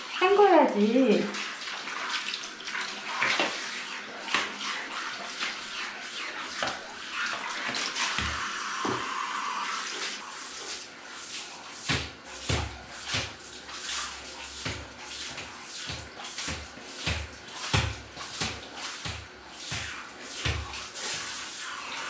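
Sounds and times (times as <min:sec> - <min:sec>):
shower head spraying water: 0:05.7 - 0:22.0
sharp knocks and splashes: 0:11.3 - 0:21.5.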